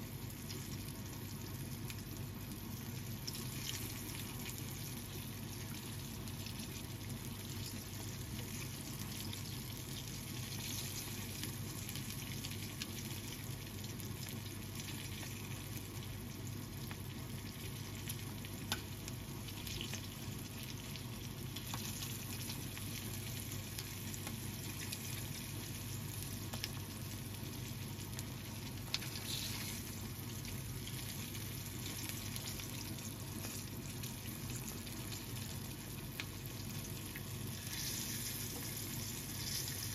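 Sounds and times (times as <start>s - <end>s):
chicken sizzling in oil: 0.0s - 39.9s.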